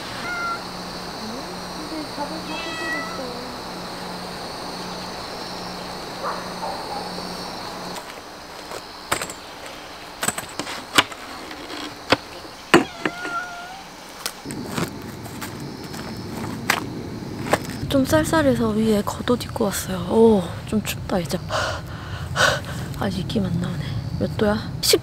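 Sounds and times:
insects chirring: 0.0 - 25.0
cat meowing: 0.1 - 0.7, 2.4 - 3.4, 12.7 - 14.0
camp chairs clicking and knocking: 7.9 - 13.4.

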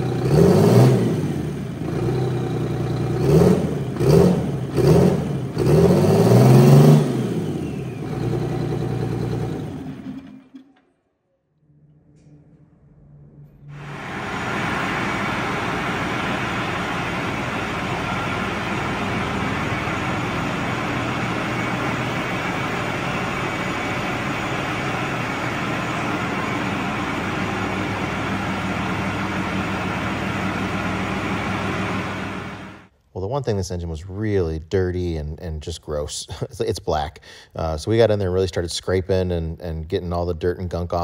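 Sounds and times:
tractor diesel engine running: 0.0 - 10.6, 13.7 - 32.9.

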